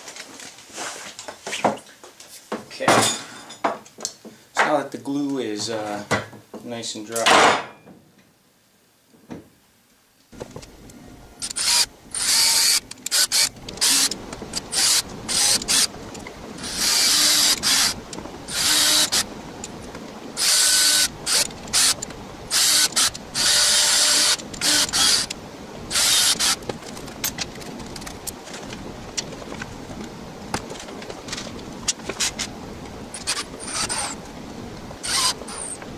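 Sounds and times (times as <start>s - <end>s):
cordless drill drilling into wood: 11.4s - 15.9s, 16.6s - 19.3s, 20.4s - 25.3s, 25.9s - 26.6s, 33.1s - 34.2s, 35.0s - 35.8s.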